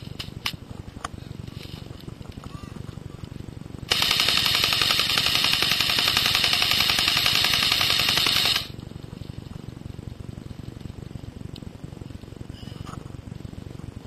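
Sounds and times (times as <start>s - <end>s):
airsoft gun full-auto burst: 3.9s - 8.7s.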